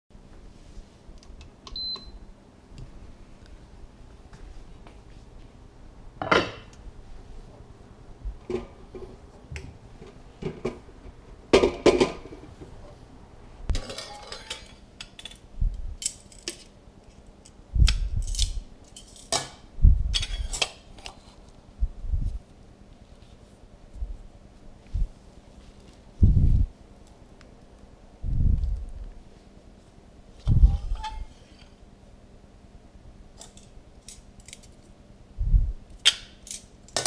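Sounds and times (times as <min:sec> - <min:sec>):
kitchenware clinking and clattering: 0:06.2 - 0:06.7, 0:13.7 - 0:15.4, 0:18.9 - 0:21.1.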